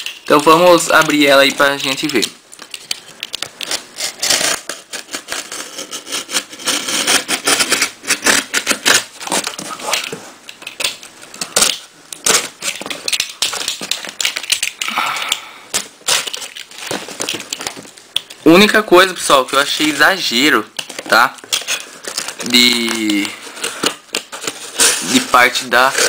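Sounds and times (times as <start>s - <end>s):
tape crinkling: 0.0s - 26.0s
knife slitting packing tape: 3.6s - 18.3s, 20.8s - 26.0s.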